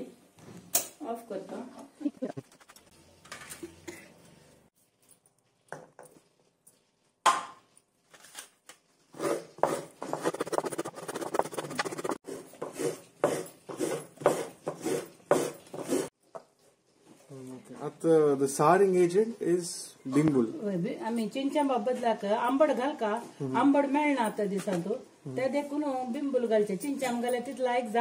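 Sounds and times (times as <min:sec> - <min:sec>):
coconut scraping on metal blade: 0:09.2 - 0:16.1.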